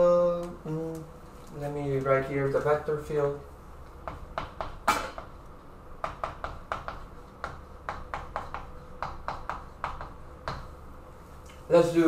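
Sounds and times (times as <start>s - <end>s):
chalk tapping and scratching: 6.1s - 10.7s.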